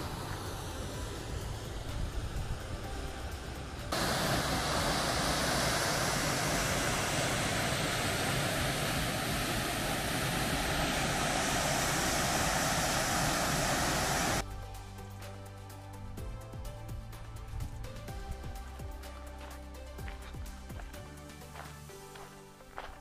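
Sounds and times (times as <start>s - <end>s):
waterfall rushing: 3.9s - 14.4s.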